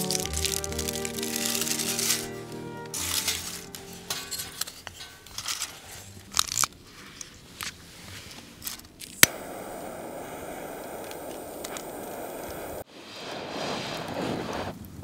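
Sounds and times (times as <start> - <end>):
wood sticks and leaves rustling: 0.0 - 9.4
torch flame hissing: 9.2 - 15.0.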